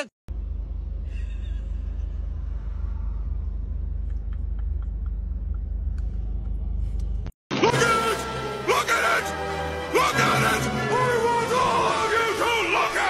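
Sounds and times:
car engine rumble inside cabin: 0.3s - 7.3s.

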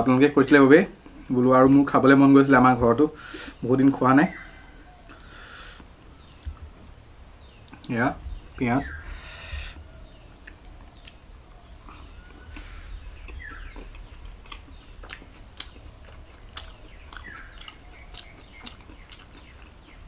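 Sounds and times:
low steady hum: 0.0s - 20.0s
person chewing and lip smacking: 10.0s - 20.0s.

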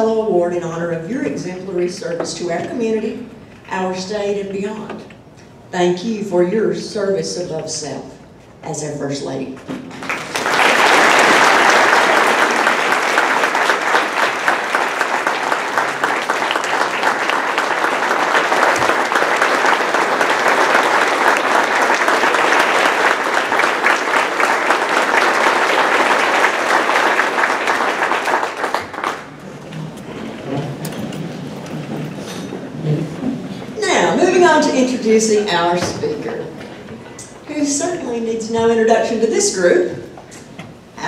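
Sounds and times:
audience applauding: 9.9s - 32.5s.

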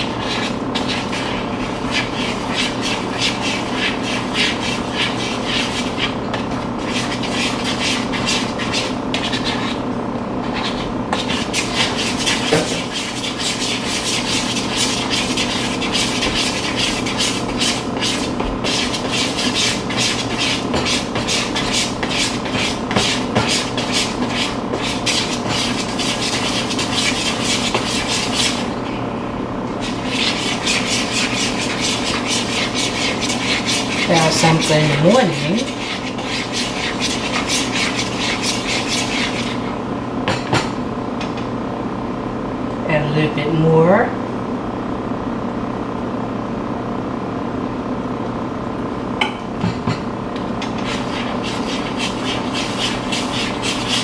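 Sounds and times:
whisk scraping a bowl: 0.0s - 9.8s, 10.4s - 29.0s, 29.7s - 39.8s, 50.6s - 54.0s
steady tonal hum: 0.0s - 54.0s.

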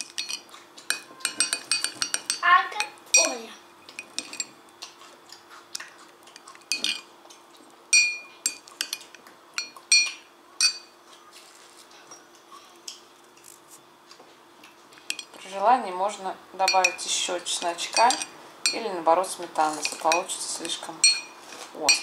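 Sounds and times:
teaspoon clinking against glass: 0.0s - 4.5s, 6.7s - 7.1s, 7.9s - 10.9s, 16.6s - 18.8s, 21.0s - 21.3s
spoon scraping: 0.0s - 4.6s, 6.3s - 7.1s, 15.0s - 15.4s, 16.6s - 22.0s.

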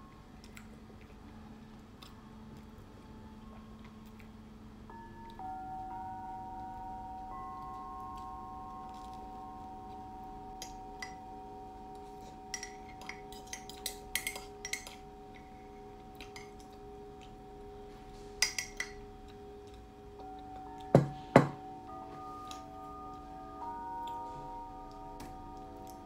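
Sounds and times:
sustained ringing tones music: 4.4s - 26.0s
spoon clinking against cup: 12.3s - 15.5s, 18.4s - 19.0s.

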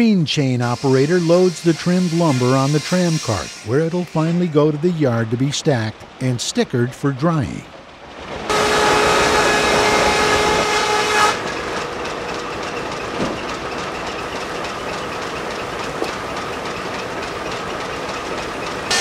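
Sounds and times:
sawmill machinery running: 0.0s - 19.0s
steam hiss: 0.3s - 4.8s.

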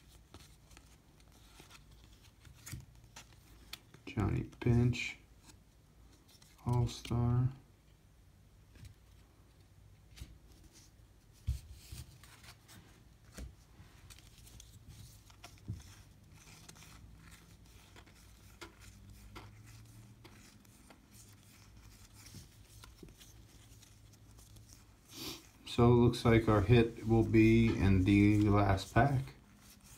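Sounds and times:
cards flipped clicking and rustling: 0.0s - 4.6s, 11.5s - 24.9s.

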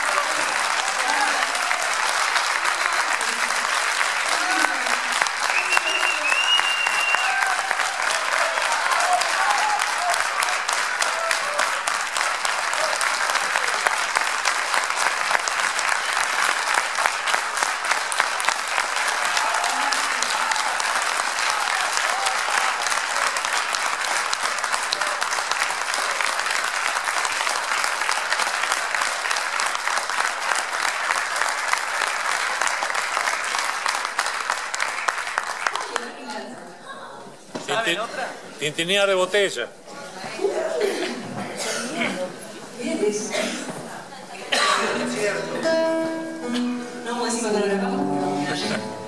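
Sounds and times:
audience applauding: 0.0s - 36.8s.

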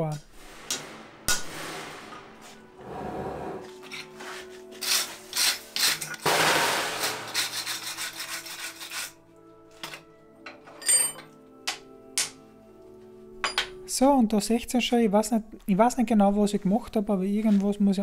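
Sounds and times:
wire brush scraping metal: 3.7s - 9.2s.

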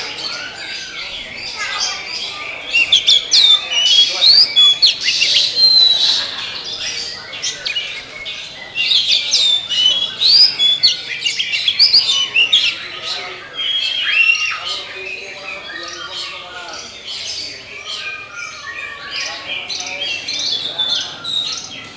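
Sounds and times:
bird singing whistled notes: 2.7s - 6.2s, 7.3s - 12.8s.

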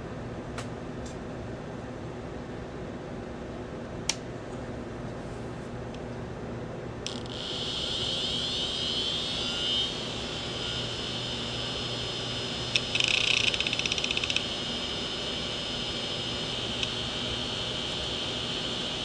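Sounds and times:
hard disk spindle whine: 7.0s - 19.0s.

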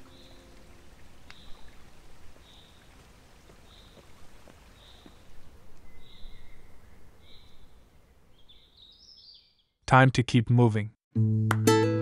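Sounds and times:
bird chirping: 0.0s - 0.6s, 4.8s - 9.8s
waterfall trickling: 0.0s - 5.6s.

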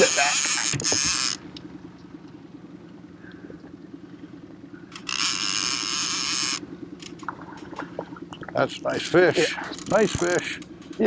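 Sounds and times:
fishing reel drag buzzing: 0.0s - 1.4s, 4.9s - 6.6s
small outboard motor running: 0.0s - 11.0s.

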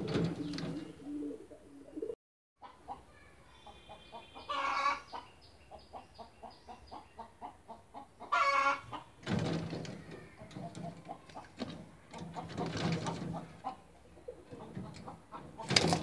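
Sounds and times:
chicken drawn-out calls: 2.6s - 5.4s, 7.2s - 9.2s
chicken clucking: 2.6s - 9.2s, 10.4s - 16.0s.

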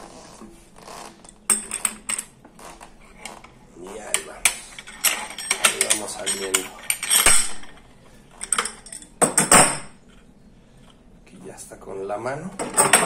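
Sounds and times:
wrenches clinking on metal axle: 4.1s - 7.8s.

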